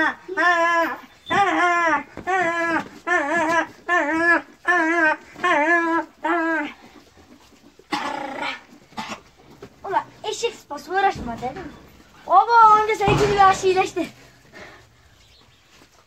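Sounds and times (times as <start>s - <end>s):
puppy whining: 0.4s - 1.9s.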